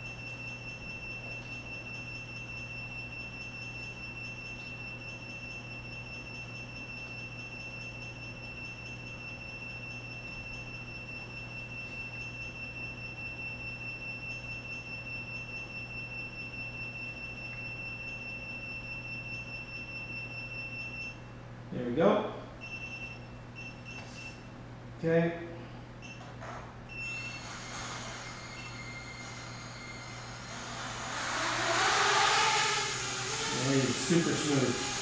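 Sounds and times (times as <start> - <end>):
high-pitched buzzer tone: 0.0 - 21.2, 26.9 - 35.0.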